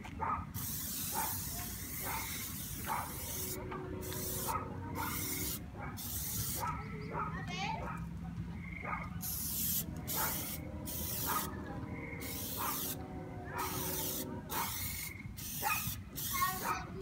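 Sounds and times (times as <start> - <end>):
aerosol can spraying: 0.6 - 6.6, 9.2 - 11.5, 12.2 - 13.0, 13.6 - 16.7.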